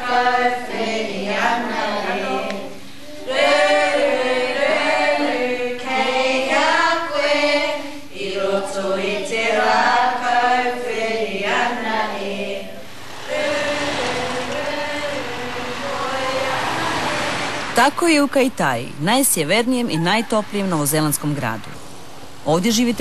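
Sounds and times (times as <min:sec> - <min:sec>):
children chanting and singing: 0:00.0 - 0:17.8.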